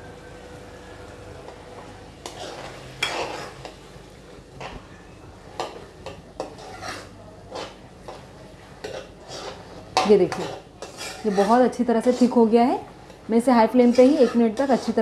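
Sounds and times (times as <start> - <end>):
metal ladle scraping a pan: 2.2 - 3.8, 5.6 - 8.2, 8.8 - 15.0.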